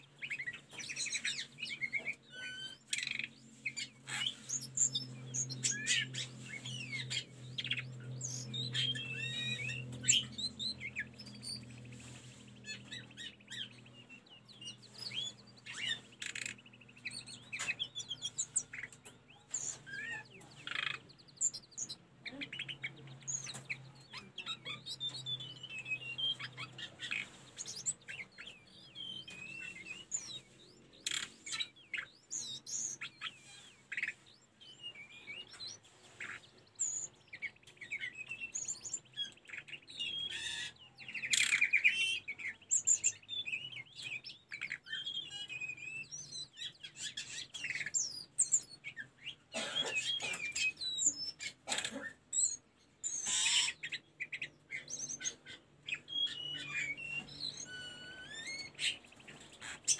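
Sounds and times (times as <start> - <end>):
bird singing high whistled notes: 36.8 - 48.8, 53.1 - 59.9.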